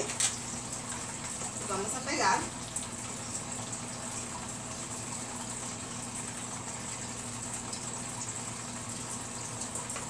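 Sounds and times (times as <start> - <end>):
faint low electrical hum: 0.0 - 10.0.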